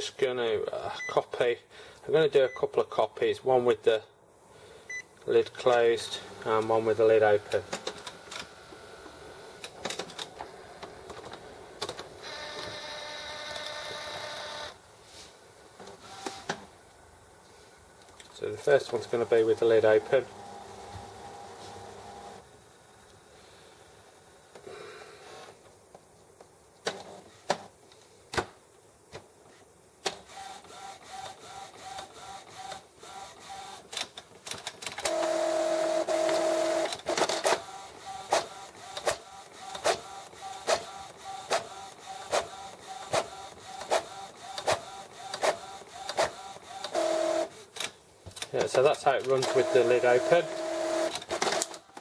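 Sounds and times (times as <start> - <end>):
printer motor whining: 6.2 - 14.8, 18.9 - 22.4, 30.2 - 33.9, 35.0 - 47.9, 49.1 - 52.0.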